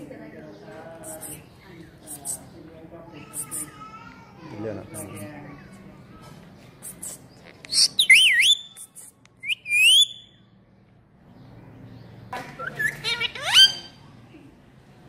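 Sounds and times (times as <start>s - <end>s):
parakeet whistling and chirping: 7.7s - 8.8s, 9.4s - 10.4s, 12.6s - 14.0s.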